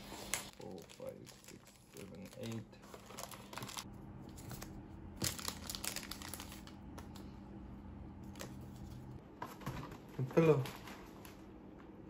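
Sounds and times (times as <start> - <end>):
foil wrappers crinkling: 0.0 - 7.2.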